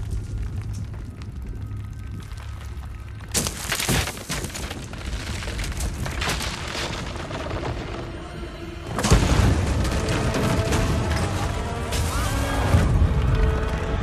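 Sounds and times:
low rumble: 0.0s - 3.4s
masonry crashing and falling debris: 0.0s - 14.0s.

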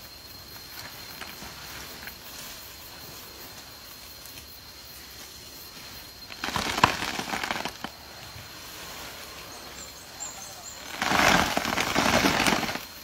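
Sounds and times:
steady low hiss: 0.0s - 13.0s
rustling of palm leaves: 0.3s - 13.0s
sharp cracks: 6.3s - 8.0s, 10.8s - 13.0s.

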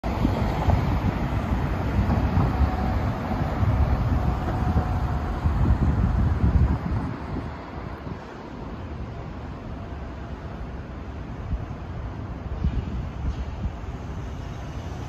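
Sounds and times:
wind buffeting microphone: 0.0s - 9.3s, 11.2s - 15.0s.

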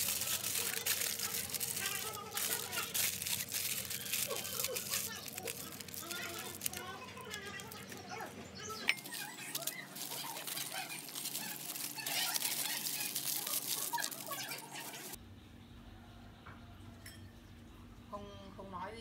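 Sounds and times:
aluminium foil crinkling: 0.0s - 15.2s.

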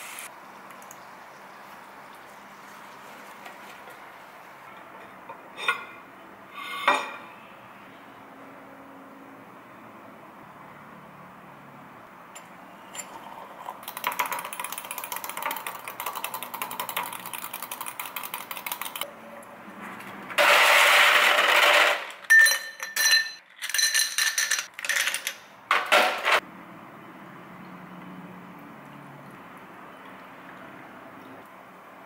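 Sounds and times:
spoon clinking in glass: 22.3s - 24.7s
ice clinking against glass: 22.3s - 25.2s.

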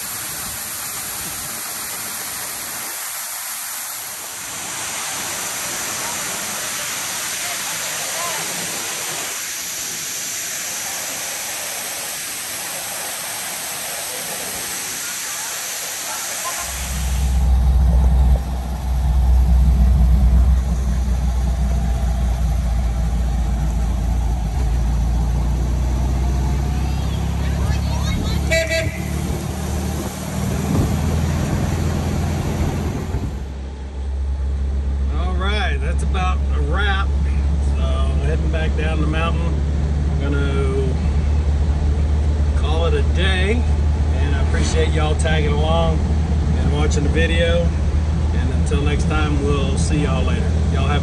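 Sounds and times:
waterfall roaring: 0.0s - 34.3s
road and wind noise: 0.0s - 51.0s
van engine droning: 16.5s - 51.0s.

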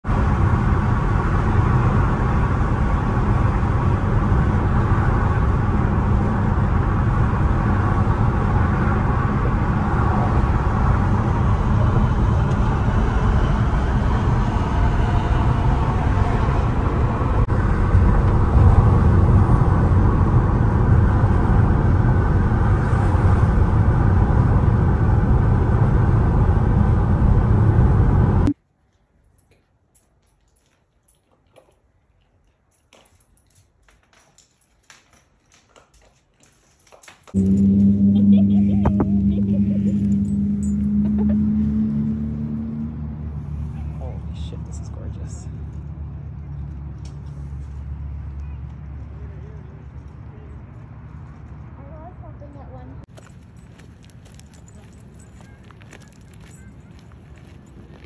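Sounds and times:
car road and wind noise: 0.0s - 28.5s, 37.3s - 58.0s.

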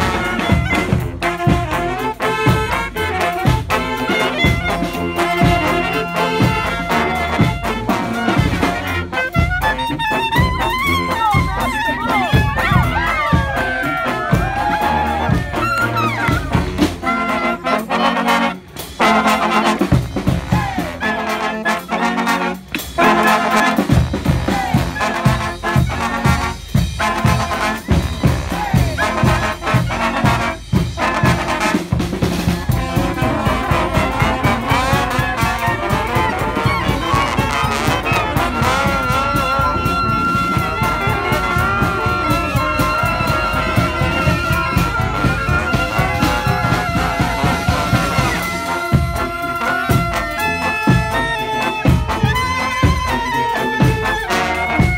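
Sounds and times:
bass line: 0.0s - 54.9s
brass band playing: 0.0s - 54.9s
drums: 0.0s - 54.9s.

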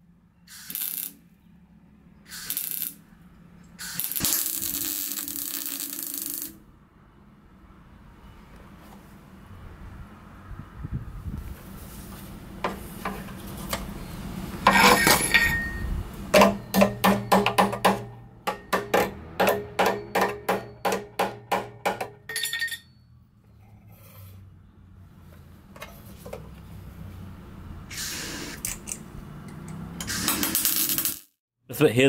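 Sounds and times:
weld crackle: 0.5s - 1.2s, 2.3s - 3.0s, 3.7s - 6.6s
hammer tapping on steel: 15.1s - 22.4s.

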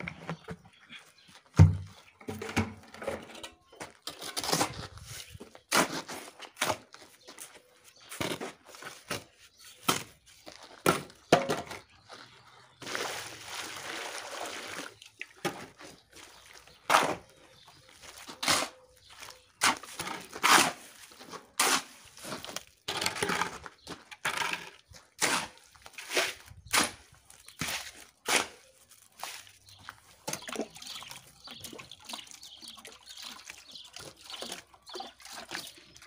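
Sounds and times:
shovel scraping cement mix: 2.3s - 11.9s, 12.8s - 30.5s.

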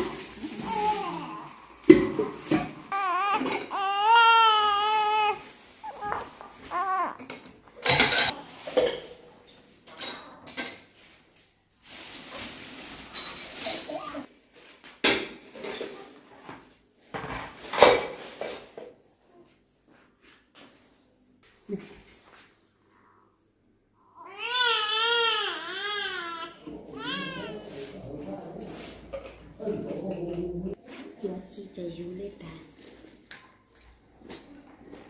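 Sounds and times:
newborn baby crying: 0.0s - 8.4s, 24.1s - 27.8s.

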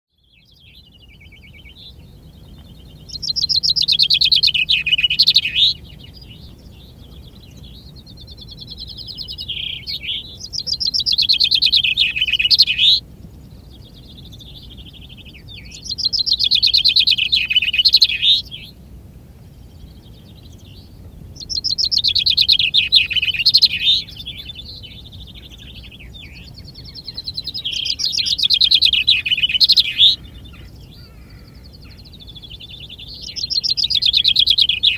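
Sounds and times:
chaffinch singing: 0.1s - 34.9s
distant chaffinch songs: 0.1s - 34.9s.

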